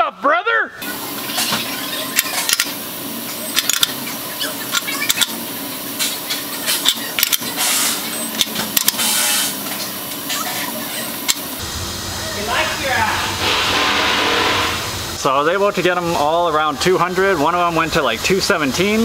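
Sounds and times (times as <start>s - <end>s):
torque wrench clicking: 2.2s - 2.8s, 3.5s - 4.0s, 6.8s - 7.5s.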